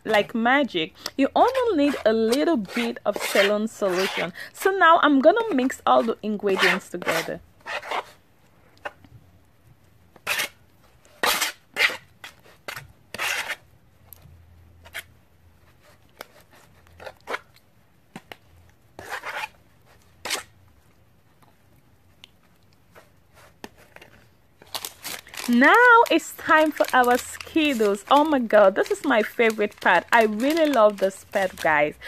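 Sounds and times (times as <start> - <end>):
spoon scraping slime in bowl: 1.0 - 4.4, 5.1 - 8.2.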